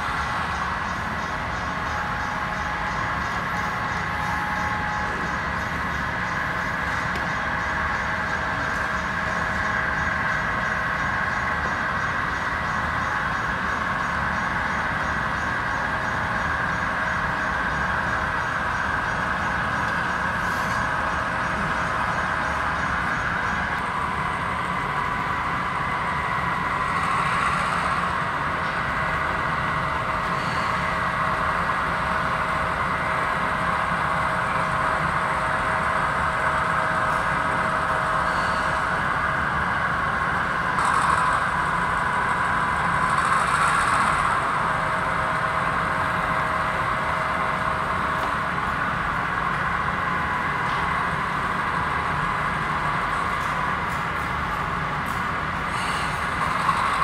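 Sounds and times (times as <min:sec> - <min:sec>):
model train engine drone: 0:00.0 - 0:57.0.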